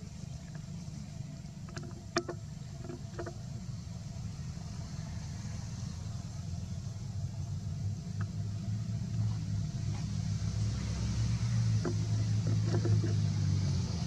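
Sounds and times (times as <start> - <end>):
low steady rumble: 0.0 - 14.0.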